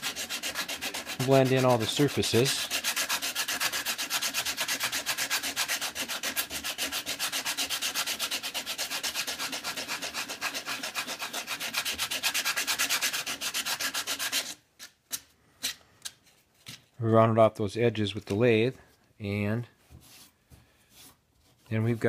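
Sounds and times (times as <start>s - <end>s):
sandpaper rubbing on cork: 0.0s - 14.6s.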